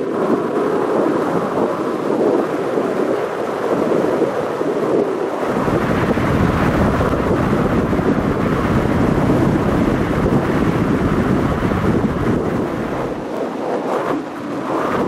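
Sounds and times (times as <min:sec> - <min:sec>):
wind buffeting microphone: 0:00.0 - 0:15.0
heavy low rumble: 0:04.8 - 0:15.0.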